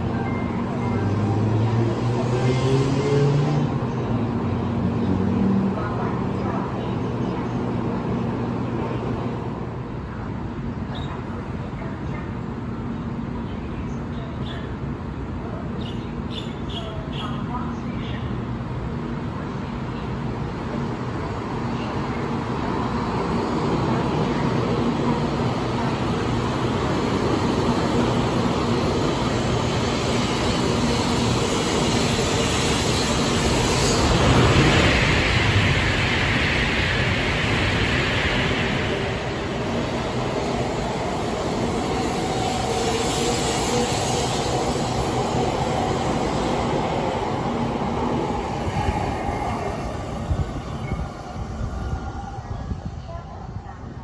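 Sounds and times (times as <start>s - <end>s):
train humming at platform: 0.0s - 54.0s.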